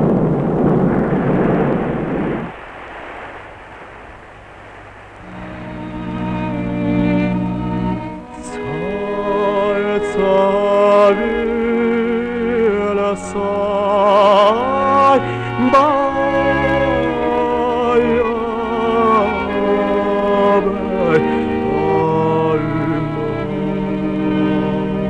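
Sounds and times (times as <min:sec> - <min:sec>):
low instrumental accompaniment: 0:05.3 - 0:25.0
man singing with vibrato: 0:08.2 - 0:25.0.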